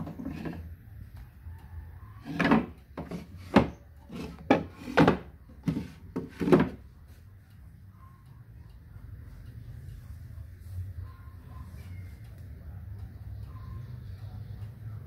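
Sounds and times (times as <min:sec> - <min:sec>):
wooden drawers sliding and knocking: 0:00.0 - 0:00.6, 0:02.2 - 0:06.8.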